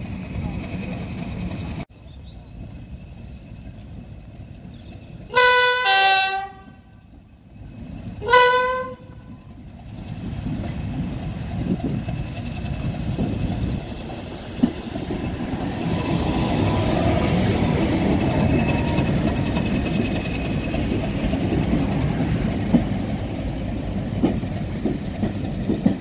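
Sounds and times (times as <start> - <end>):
diesel engine and wheels on rails: 0.0 - 26.0
locomotive two-tone horn: 5.3 - 7.0, 8.2 - 9.4.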